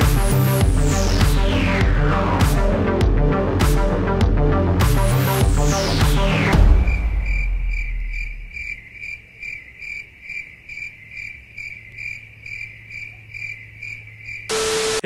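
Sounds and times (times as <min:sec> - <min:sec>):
cricket chirping: 0:06.6 - 0:15.0.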